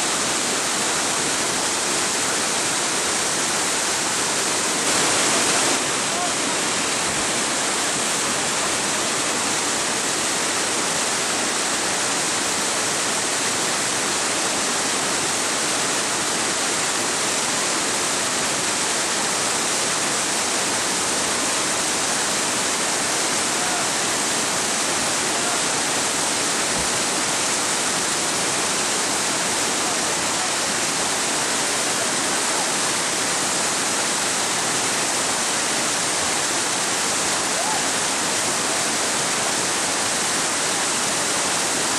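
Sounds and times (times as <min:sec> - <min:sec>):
whitewater rapids rushing: 0:00.0 - 0:41.9.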